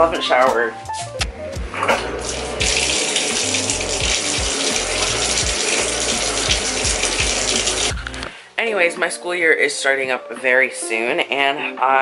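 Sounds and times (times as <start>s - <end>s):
shower spray hissing: 2.2s - 8.2s.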